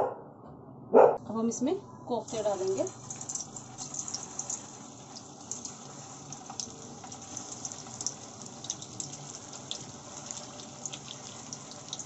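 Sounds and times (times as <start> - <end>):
food deep-frying in hot oil: 2.1 - 12.0
oil crackling and popping: 2.3 - 12.0.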